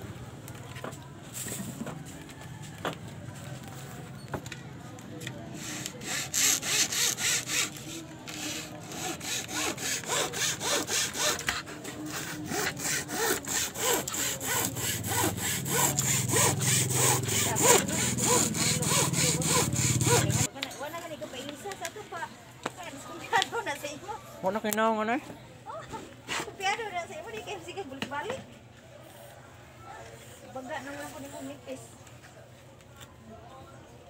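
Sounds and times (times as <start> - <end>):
hacksaw cutting wood: 5.6 - 20.5.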